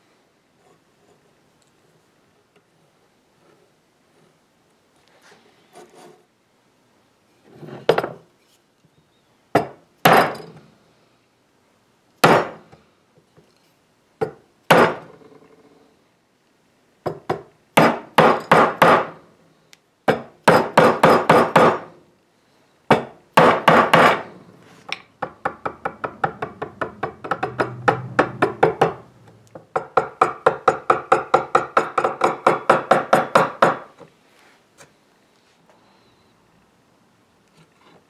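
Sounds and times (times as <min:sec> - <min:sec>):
mallet tapping wood chisel: 0:25.2 - 0:33.9.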